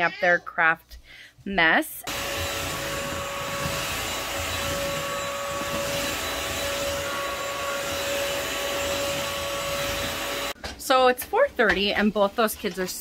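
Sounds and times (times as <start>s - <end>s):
vacuum mop motor whirring: 2.1s - 10.6s.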